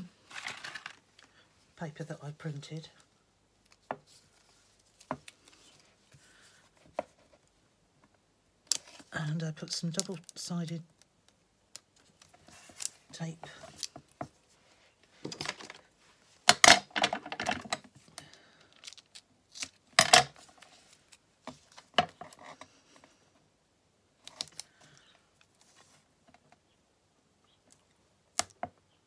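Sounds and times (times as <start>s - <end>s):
tape and paper rustling: 11.9s - 14.1s.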